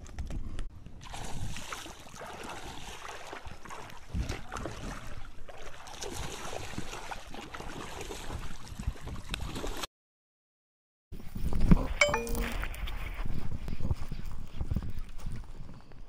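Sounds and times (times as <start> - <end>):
wind rumbling on microphone: 12.6 - 16.0.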